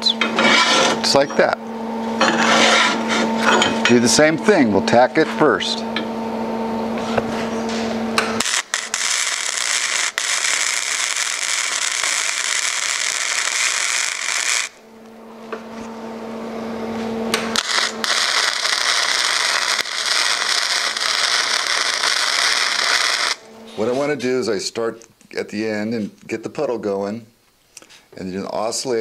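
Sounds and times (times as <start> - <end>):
welder humming: 0.0 - 24.5
welding arc crackling: 8.4 - 14.9, 17.3 - 23.6.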